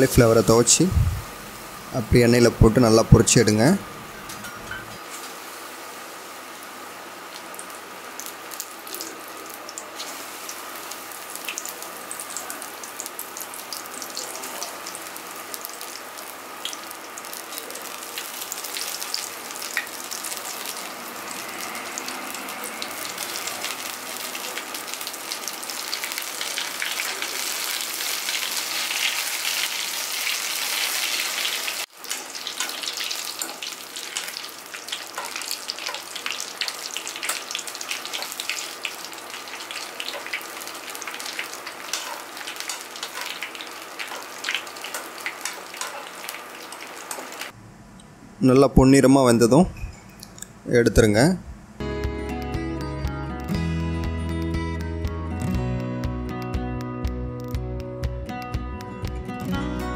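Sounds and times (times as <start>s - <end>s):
battered food deep-frying in oil: 4.7s - 47.6s.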